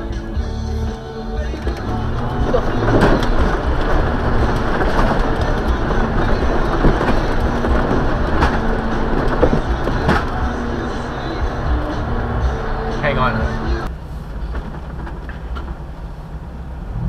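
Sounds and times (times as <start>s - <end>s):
vehicle engine running: 0.0s - 17.0s
knocks and clicks: 1.5s - 12.8s.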